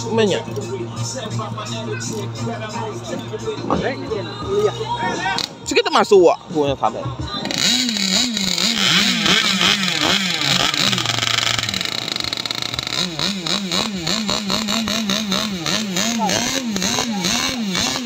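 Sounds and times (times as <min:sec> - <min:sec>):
racing boat engines revving: 0:07.4 - 0:18.0.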